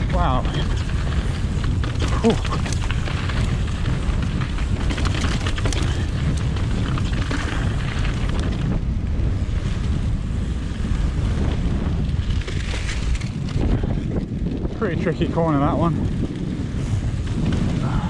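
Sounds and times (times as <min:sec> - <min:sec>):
bike rattling: 0:00.0 - 0:18.0
wind buffeting microphone: 0:00.0 - 0:18.0
tyre noise on gravel: 0:00.1 - 0:08.8.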